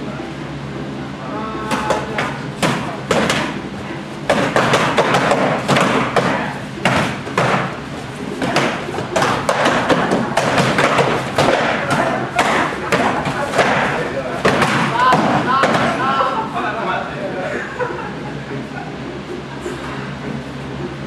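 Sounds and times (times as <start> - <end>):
voices: 0.0 - 21.0
training sticks clashing and thudding: 8.4 - 16.0.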